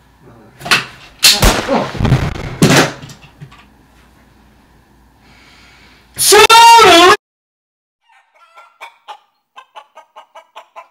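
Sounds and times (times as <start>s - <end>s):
loud bangs and thuds: 1.3s - 3.2s.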